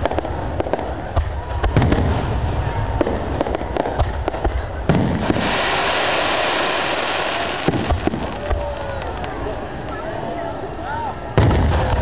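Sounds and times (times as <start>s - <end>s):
fireworks bangs and pops: 0.0s - 10.4s, 11.3s - 12.0s
firework boom: 4.0s - 9.4s, 11.4s - 12.0s
loud hiss: 4.9s - 9.9s.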